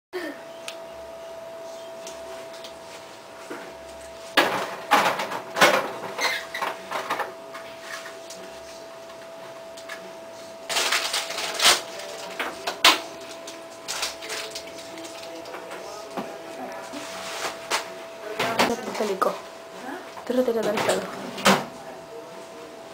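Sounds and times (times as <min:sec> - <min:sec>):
rustling and crinkling: 0:10.7 - 0:18.0.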